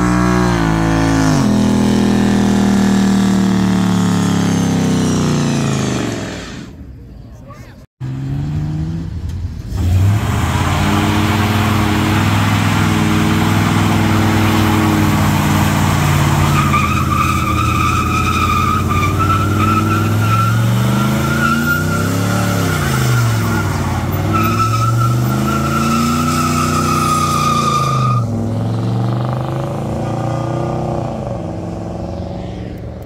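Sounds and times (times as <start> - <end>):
engine revving high: 0.0 - 6.8, 8.0 - 32.8
tyre squeal: 14.5 - 28.3.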